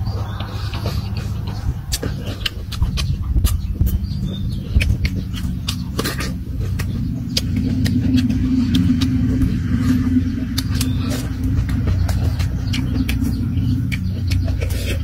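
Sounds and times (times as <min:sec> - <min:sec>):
mouth chewing clicks and smacks: 0:00.0 - 0:15.0
steady low rumble: 0:00.0 - 0:15.0.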